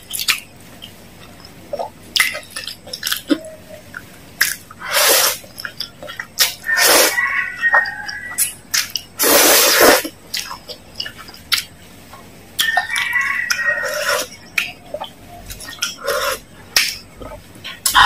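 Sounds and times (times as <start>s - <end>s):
chewing: 0.0s - 18.0s
slurping noodles: 4.4s - 5.7s, 6.4s - 7.2s, 9.2s - 10.6s, 15.6s - 16.5s.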